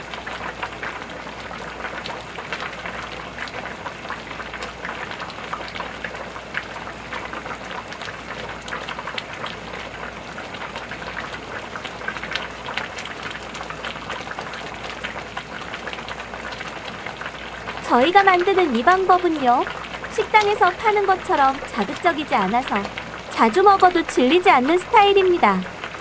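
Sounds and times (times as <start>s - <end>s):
soup bubbling in a pot: 0.0s - 26.0s.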